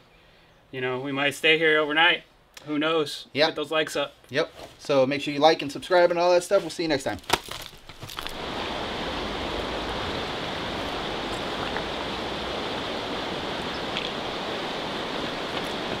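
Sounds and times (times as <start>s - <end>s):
rushing mountain river: 8.2s - 16.0s.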